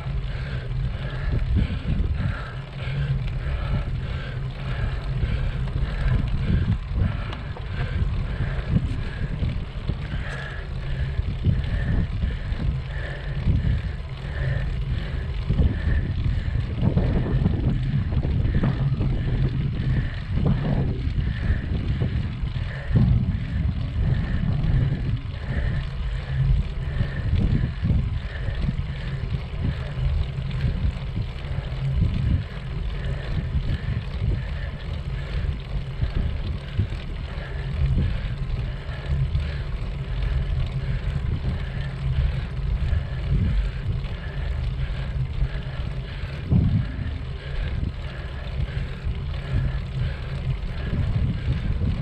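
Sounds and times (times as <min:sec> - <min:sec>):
bicycle tyre and road noise: 0:00.0 - 0:52.0
faint regular ticking: 0:00.0 - 0:52.0
wind buffeting microphone: 0:00.0 - 0:52.0.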